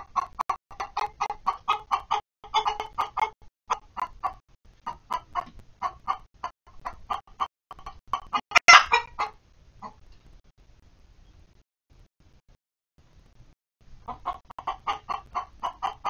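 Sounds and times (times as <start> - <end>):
hens clucking: 0.0 - 10.0, 14.0 - 16.0.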